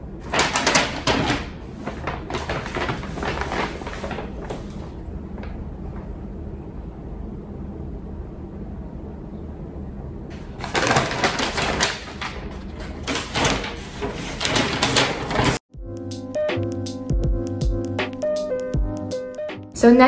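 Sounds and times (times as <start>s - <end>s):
low room hum: 0.0s - 14.8s
paper bag rustling: 0.2s - 5.1s, 10.3s - 15.6s.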